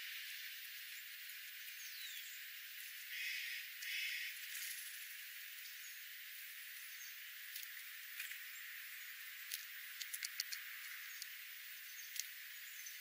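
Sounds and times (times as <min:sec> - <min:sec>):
steady hiss: 0:00.0 - 0:13.0
faint high bird chirps: 0:00.9 - 0:04.9
birds pecking at seed: 0:06.8 - 0:13.0.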